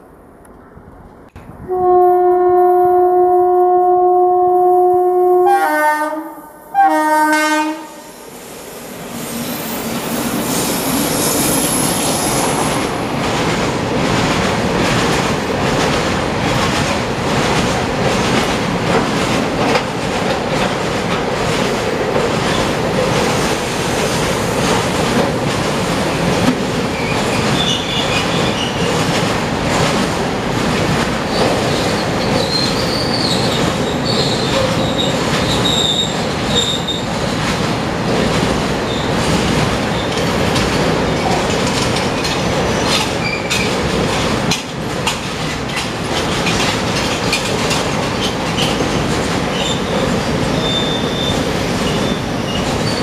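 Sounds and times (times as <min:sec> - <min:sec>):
locomotive horn blasts: 0:01.7 - 0:08.1
train wheels clattering over rail joints: 0:13.1 - 0:53.0
brief high squeal: 0:50.6 - 0:53.0.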